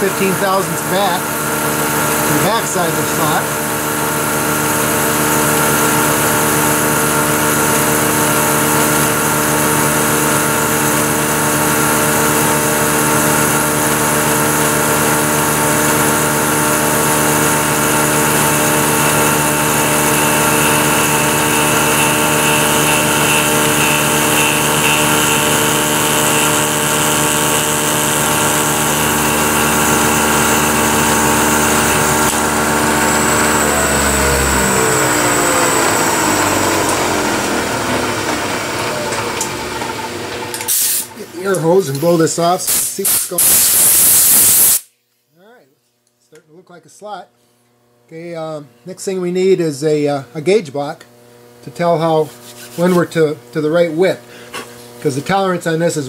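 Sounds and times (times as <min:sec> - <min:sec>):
milling machine running: 0:00.0 - 0:42.1.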